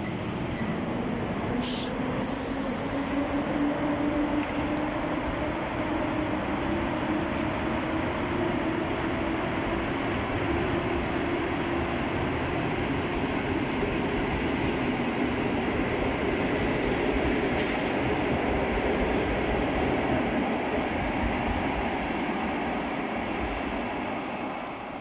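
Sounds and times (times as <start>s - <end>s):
train rumbling: 0.0s - 25.0s
brief high hiss: 1.6s - 3.0s.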